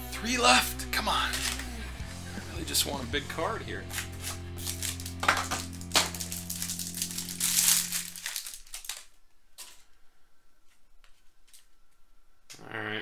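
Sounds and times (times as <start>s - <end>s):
plastic wrapper crinkling: 1.2s - 1.8s, 3.8s - 10.0s.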